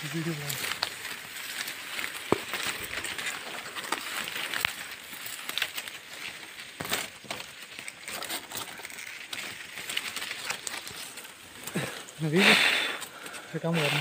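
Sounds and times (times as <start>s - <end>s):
person speaking: 0.0s - 0.8s, 11.8s - 14.0s
dry grass rustling and crackling: 0.0s - 14.0s.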